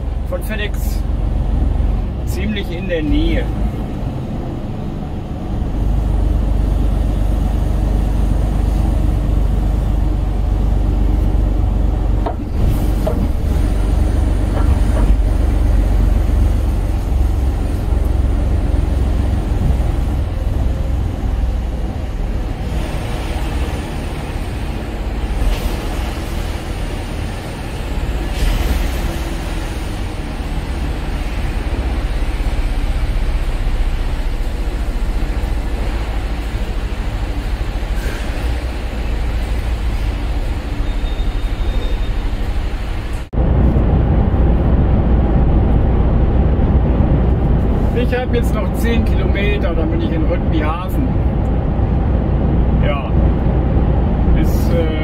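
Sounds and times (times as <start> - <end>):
lorry diesel engine rumble: 0.0 - 55.0
road noise: 0.0 - 55.0.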